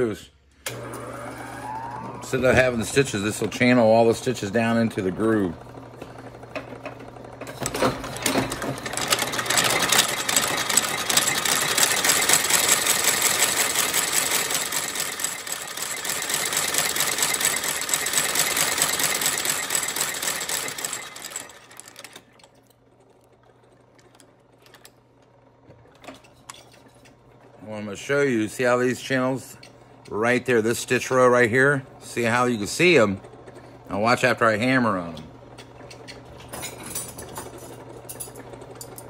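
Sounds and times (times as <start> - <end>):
stitching machine clatter: 5.2 - 27.6.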